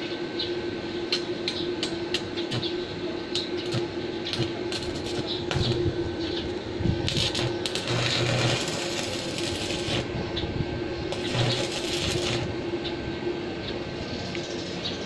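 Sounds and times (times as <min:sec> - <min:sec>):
steady low hum: 0:00.0 - 0:15.0
welding arc crackling and sizzling: 0:02.1 - 0:02.7, 0:03.4 - 0:10.1, 0:11.1 - 0:12.7.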